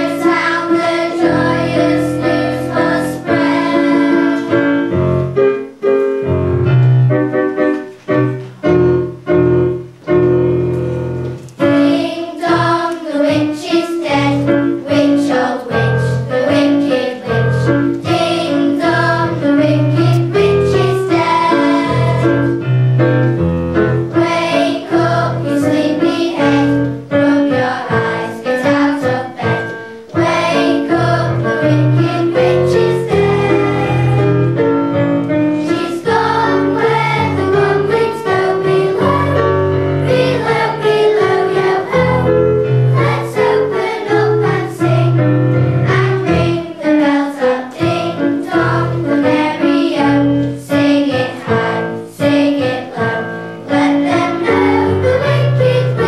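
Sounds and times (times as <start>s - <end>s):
children's choir singing: 0.0s - 6.0s, 11.2s - 56.0s
piano accompaniment: 0.0s - 56.0s.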